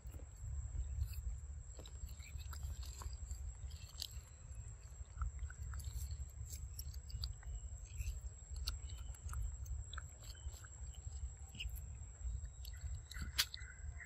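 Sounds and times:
monkey chewing fruit: 0.0s - 14.0s.

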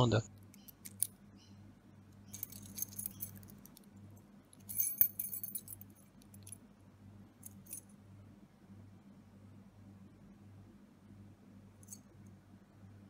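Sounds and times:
keys jangling: 0.5s - 1.2s, 2.3s - 3.9s, 4.6s - 6.6s, 7.4s - 7.9s.

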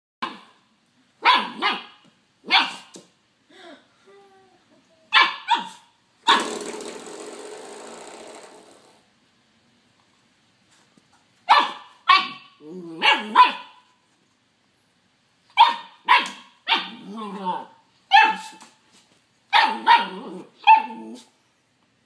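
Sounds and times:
puppy barking: 0.2s - 0.6s, 1.2s - 2.9s, 5.1s - 6.5s, 11.5s - 13.8s, 15.6s - 18.6s, 19.5s - 21.2s.

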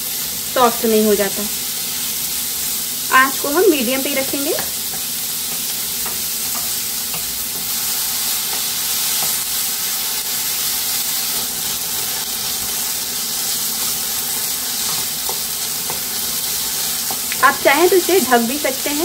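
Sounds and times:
vegetables sizzling in oil: 0.0s - 19.0s
wooden spatula stirring in pan: 4.0s - 18.2s.

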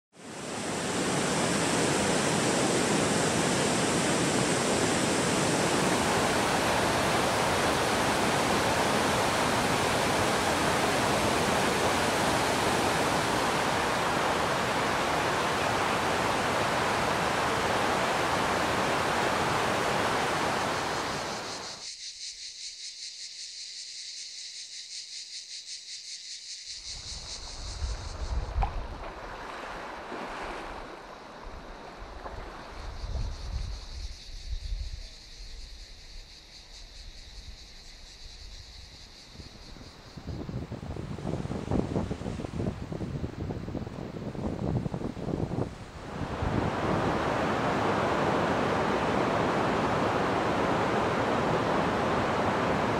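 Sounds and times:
waterfall roaring: 0.8s - 21.4s, 46.0s - 52.9s
small sea waves lapping: 28.8s - 32.9s, 45.8s - 52.9s
wind buffeting microphone: 40.1s - 52.9s.

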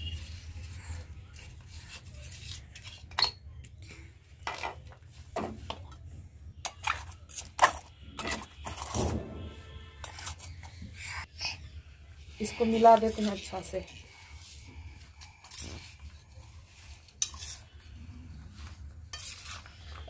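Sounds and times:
steel spoon clinking and scraping: 0.0s - 3.7s, 10.0s - 10.8s, 13.0s - 20.0s.

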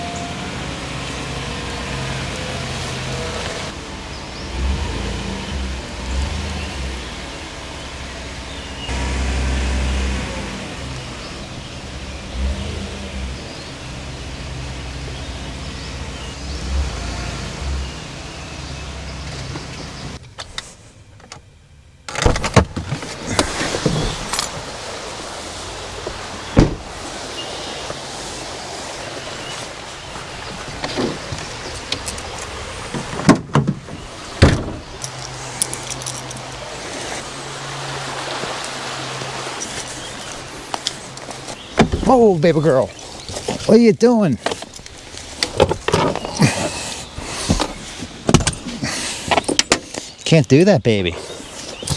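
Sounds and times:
truck engine and road rumble: 0.0s - 51.9s
clunks and rattles: 22.1s - 24.6s, 26.0s - 26.9s, 30.6s - 36.5s, 44.4s - 46.8s, 47.4s - 50.0s.

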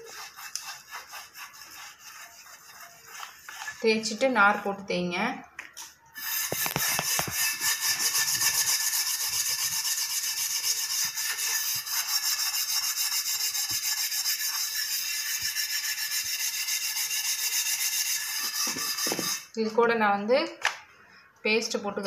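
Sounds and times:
scrubbing on griddle: 0.0s - 4.3s, 6.2s - 19.4s.

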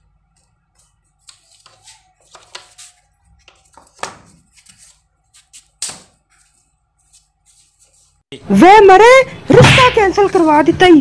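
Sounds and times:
squeegee scraping and knocking: 0.3s - 8.2s.

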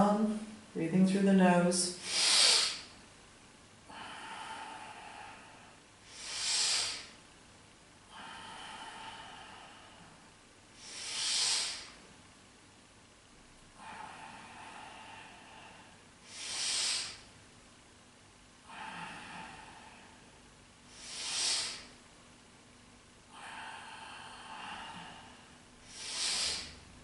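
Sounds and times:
person breathing through the nose: 2.0s - 2.9s, 3.9s - 7.2s, 8.1s - 10.2s, 10.8s - 12.0s, 13.8s - 17.3s, 18.7s - 22.0s, 23.3s - 26.8s.

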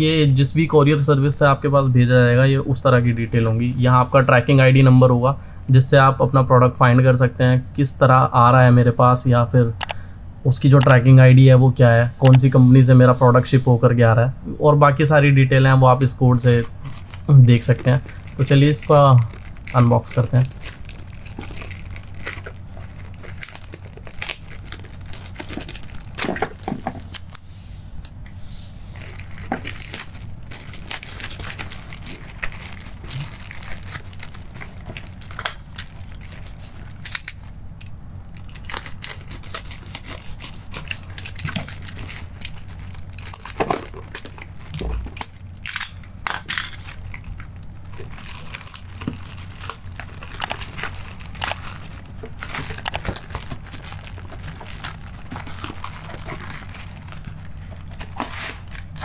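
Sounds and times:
plastic mailer crinkling: 16.4s - 27.4s, 28.9s - 37.6s, 38.3s - 59.0s.

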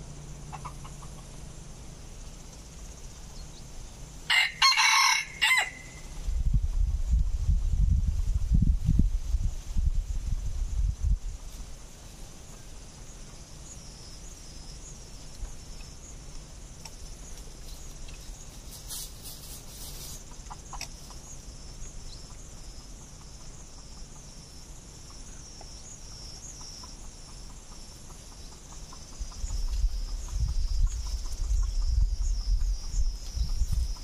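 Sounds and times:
insects trilling: 0.0s - 34.0s
rooster clucking: 0.5s - 1.3s
scratching in dry leaves: 17.3s - 20.8s
scratchy rustle: 17.6s - 20.3s.

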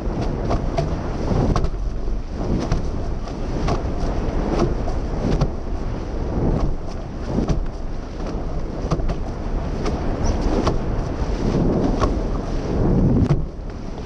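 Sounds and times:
water rushing past hulls: 0.0s - 14.0s
water slapping and splashing: 0.0s - 14.0s
wind buffeting microphone: 0.0s - 14.0s.

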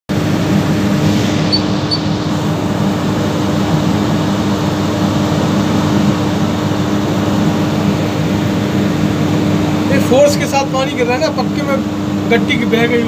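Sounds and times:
train machinery humming: 0.1s - 5.6s.

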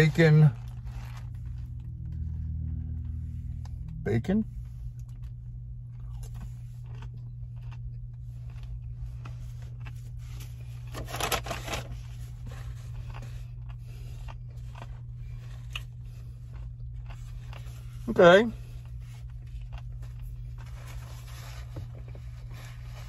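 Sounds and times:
car cabin hum: 0.0s - 23.0s
chewing crunchy bacon: 4.6s - 22.8s.

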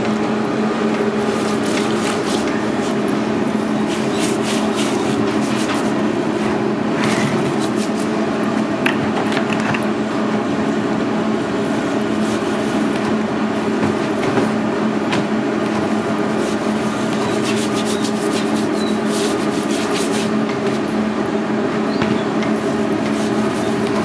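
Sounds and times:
loud machine drone: 0.0s - 24.0s
scratchy rubbing by hand: 1.2s - 6.0s, 7.4s - 8.1s, 16.2s - 20.4s, 22.6s - 24.0s.

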